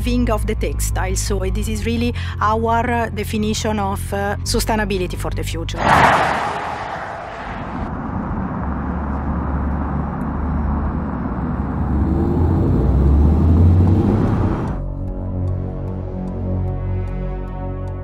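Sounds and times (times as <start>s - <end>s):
electric car driving by: 5.8s - 14.8s
road and tyre noise: 5.8s - 14.9s.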